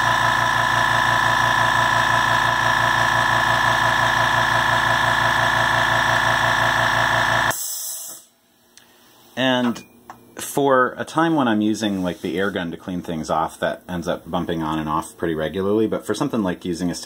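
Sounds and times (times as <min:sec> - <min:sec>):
air compressor running: 0:00.0 - 0:08.4
brief hiss of air: 0:07.5 - 0:08.4.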